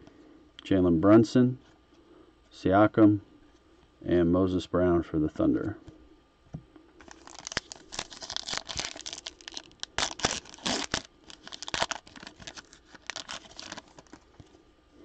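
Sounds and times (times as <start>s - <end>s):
foil wrapper tearing and crinkling: 7.0s - 14.4s.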